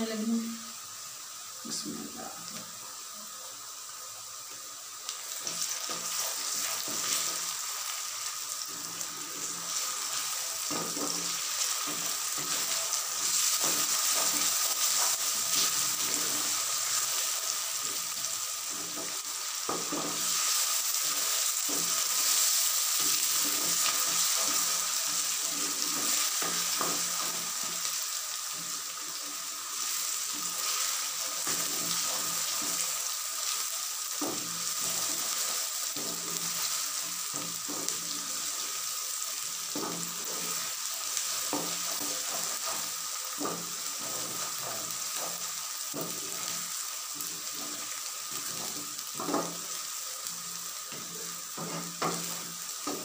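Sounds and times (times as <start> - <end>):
food sizzling in hot oil: 0.0 - 53.0.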